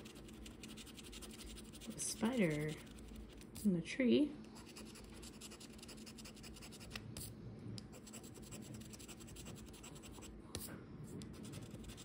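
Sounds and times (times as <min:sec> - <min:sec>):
scratch-off ticket being scratched: 0:00.0 - 0:03.6.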